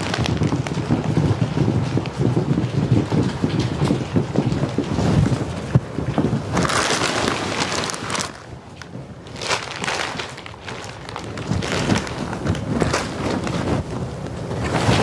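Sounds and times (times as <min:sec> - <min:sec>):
plastic wrapping crinkling: 0:00.0 - 0:00.9, 0:06.5 - 0:13.9.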